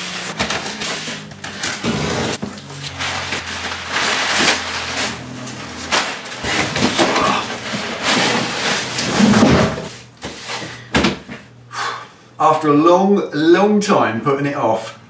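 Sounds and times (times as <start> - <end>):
packing paper rustling: 0.0 - 10.7
cardboard boxes scraping and knocking: 0.3 - 10.8.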